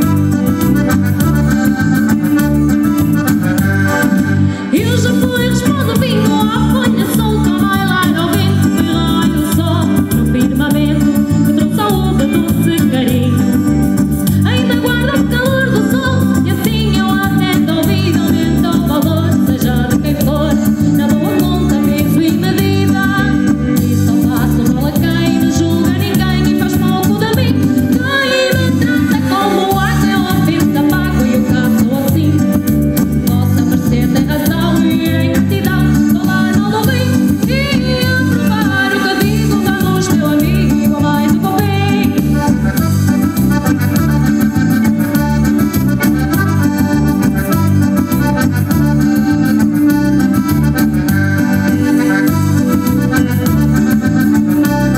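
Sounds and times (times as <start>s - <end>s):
live band music over pa: 0.0s - 54.9s
woman singing: 4.6s - 13.6s, 14.3s - 42.8s.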